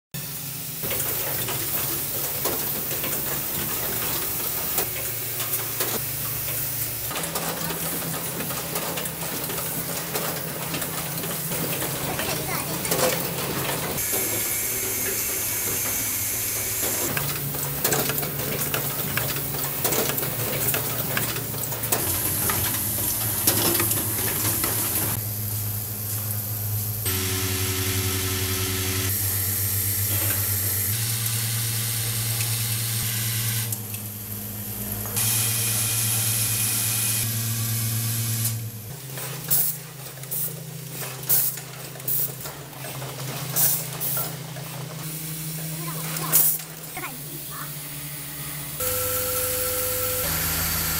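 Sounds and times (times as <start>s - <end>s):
machine hum: 0.2s - 39.0s, 45.2s - 50.9s.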